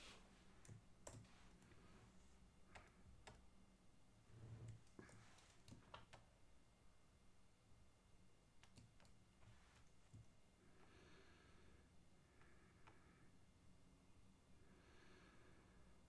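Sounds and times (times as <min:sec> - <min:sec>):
computer clicks and taps: 0:00.6 - 0:01.8, 0:02.7 - 0:03.5, 0:04.6 - 0:06.3, 0:08.6 - 0:10.3.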